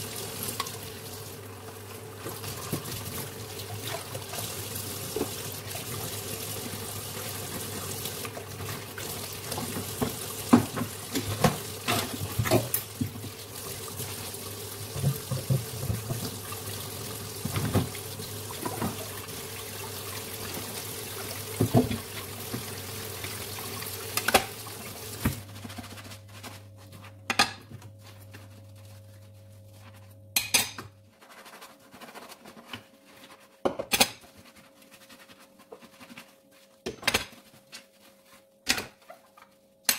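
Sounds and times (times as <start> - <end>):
tap running into sink: 9.5 - 13.5, 14.8 - 16.6, 17.3 - 19.3, 21.5 - 22.8.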